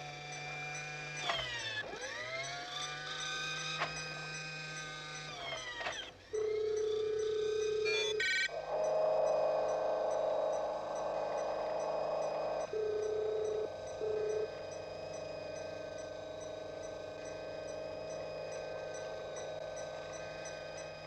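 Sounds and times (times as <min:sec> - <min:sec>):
buzzing tone: 0:00.0 - 0:21.0
electronic whining tones: 0:00.0 - 0:21.0
electronic beeps: 0:02.4 - 0:21.0
low hum: 0:06.4 - 0:21.0.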